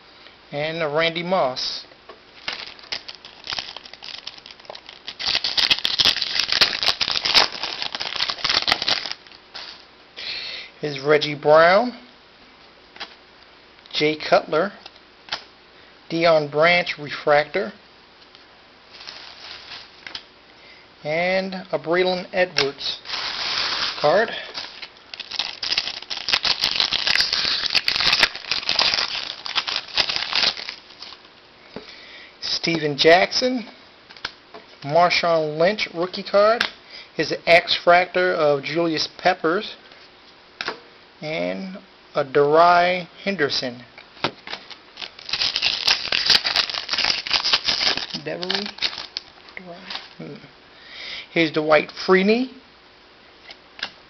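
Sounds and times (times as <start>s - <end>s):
foil wrapper crinkling and tearing: 2.4s - 9.8s, 18.9s - 20.2s, 22.6s - 31.3s, 44.4s - 50.2s.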